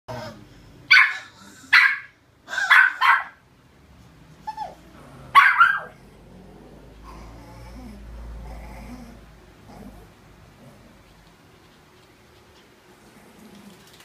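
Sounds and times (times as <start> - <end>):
small dog barking: 0.9 - 3.4, 5.3 - 6.0.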